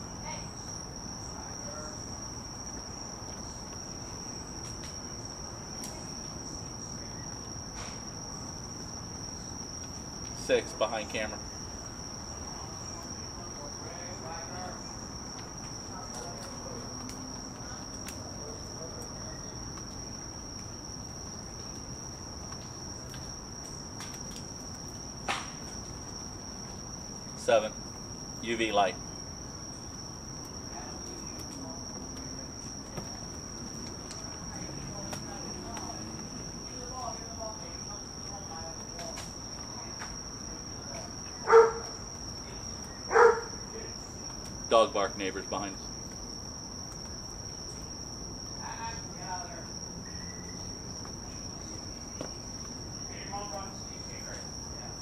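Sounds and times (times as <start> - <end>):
low background hiss: 0.0 - 55.0
night insects chirring: 0.0 - 55.0
high-pitched insect drone: 48.6 - 52.4.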